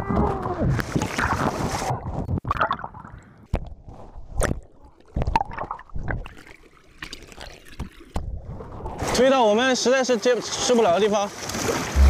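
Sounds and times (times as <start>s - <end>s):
water splashing and sloshing: 0.0s - 12.0s
rushing wash of water: 10.4s - 12.0s.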